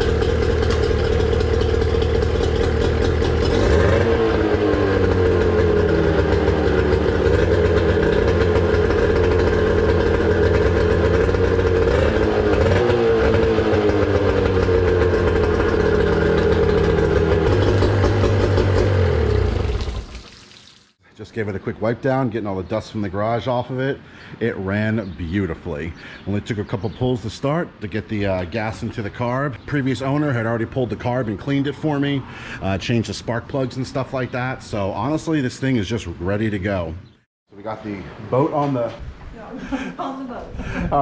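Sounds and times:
outboard engine running: 0.0 - 20.2
propeller splashing water: 0.0 - 21.0.

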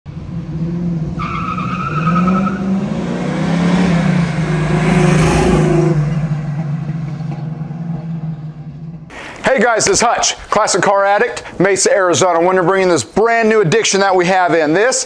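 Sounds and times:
car engine revving as it passes: 0.1 - 9.1.

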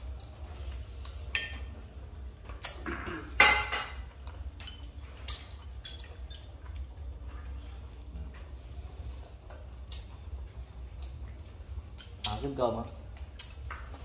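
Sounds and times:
tableware clinking: 1.3 - 1.8, 3.2 - 4.9.

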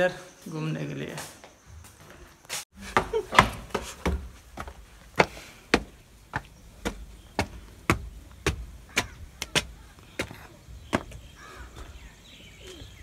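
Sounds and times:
footsteps climbing stairs: 1.2 - 12.0.

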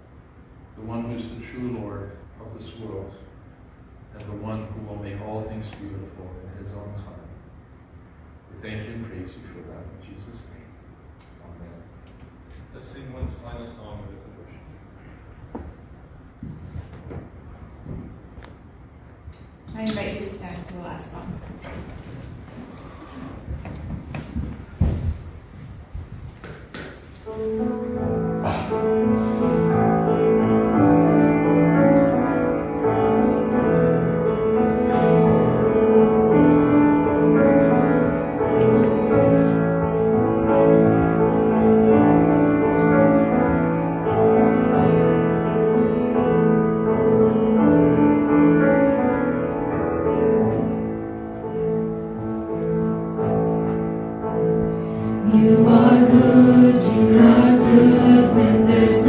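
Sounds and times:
slow sustained instrumental chords: 27.3 - 59.0.

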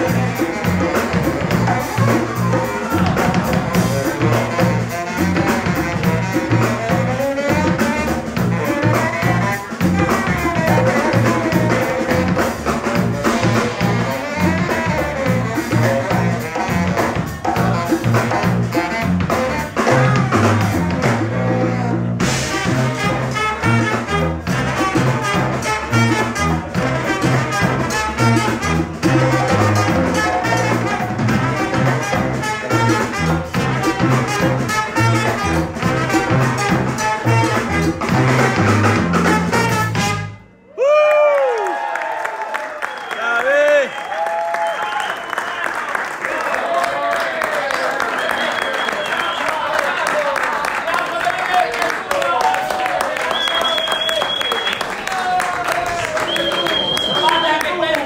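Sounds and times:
bass drum: 0.0 - 40.4
sousaphone bass line: 0.0 - 40.4
trumpet: 0.0 - 40.7
drum kit: 0.0 - 41.0.

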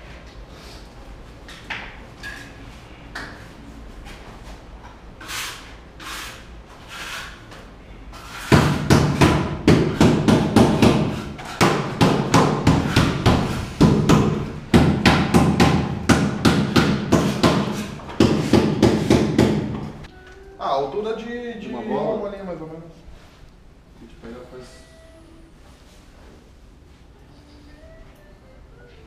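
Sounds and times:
soft music swells: 24.3 - 26.0.

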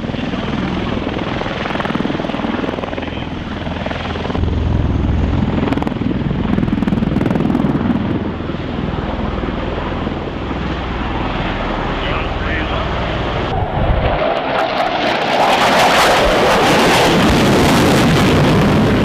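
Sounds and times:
steady engine noise: 0.0 - 13.6.

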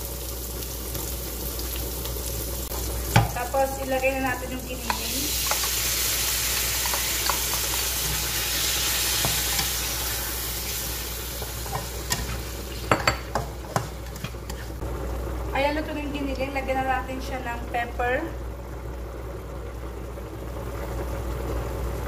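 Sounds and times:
meat sizzling in frying pan: 0.0 - 15.3
spatula scraping pan: 6.8 - 14.8.

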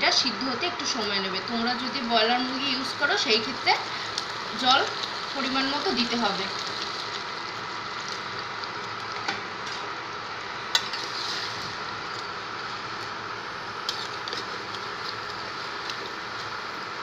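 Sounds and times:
sauce bubbling in a pan: 1.9 - 17.0.

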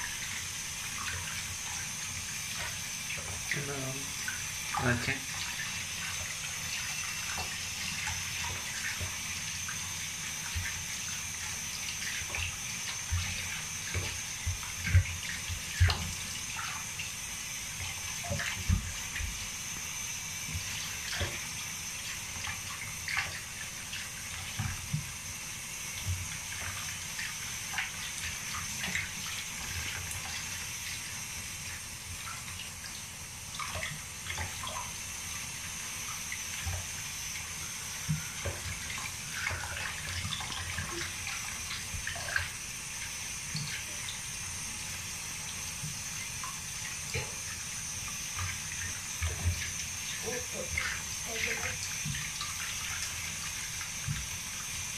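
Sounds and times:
water splashing in a basin: 0.0 - 54.9.

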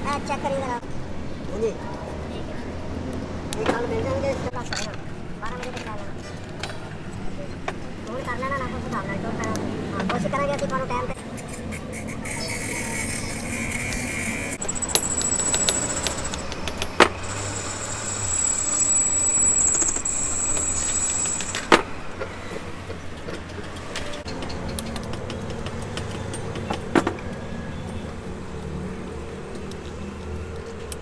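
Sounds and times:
thin high whine: 12.4 - 21.8
metallic clinking and tapping: 14.6 - 17.4
machine hum: 14.6 - 21.8.

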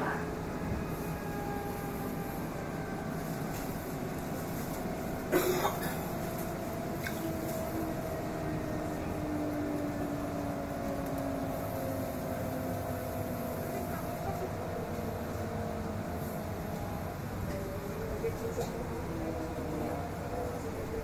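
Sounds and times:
electric train interior hum: 0.0 - 21.0.

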